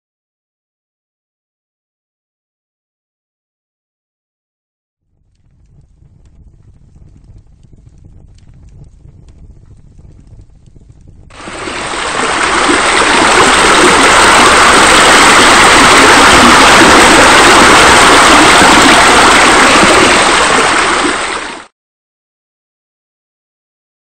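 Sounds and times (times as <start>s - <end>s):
flowing water rushing: 11.3s - 21.7s.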